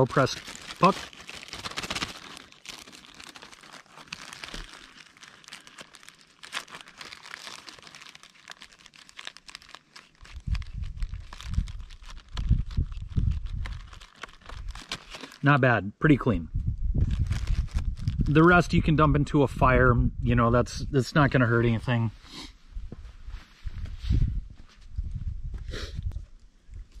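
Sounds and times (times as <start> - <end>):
plastic bag crinkling: 0.0 - 15.5, 17.1 - 18.4.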